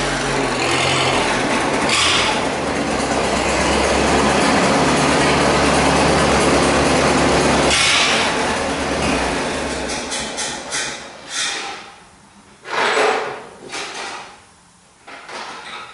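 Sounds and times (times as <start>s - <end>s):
tractor engine running: 0.0s - 11.3s.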